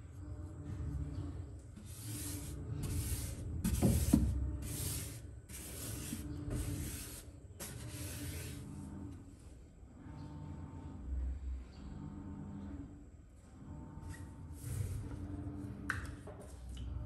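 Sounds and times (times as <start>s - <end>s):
paintbrush swishing on shelf: 1.8s - 8.7s.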